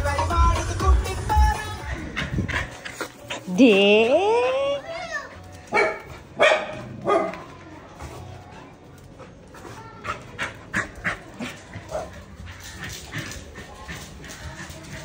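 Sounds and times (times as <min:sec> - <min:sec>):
puppy barking: 0:05.7 - 0:07.5.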